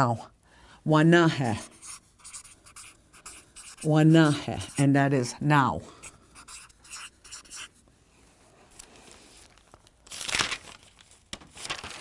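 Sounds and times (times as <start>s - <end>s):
paper rustling: 8.8s - 12.0s.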